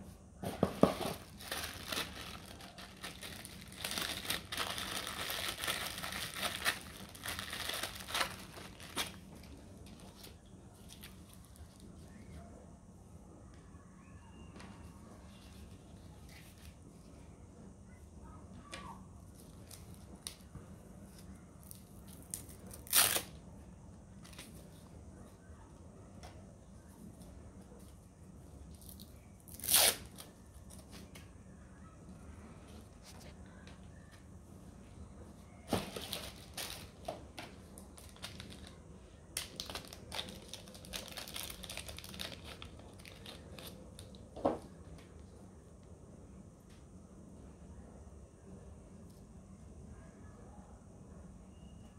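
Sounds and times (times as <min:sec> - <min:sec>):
plastic bag crinkling: 0:00.8 - 0:11.8, 0:35.7 - 0:37.1, 0:37.8 - 0:38.8, 0:39.4 - 0:44.3
hook-and-loop fastener ripping: 0:21.6 - 0:23.3, 0:29.5 - 0:30.3.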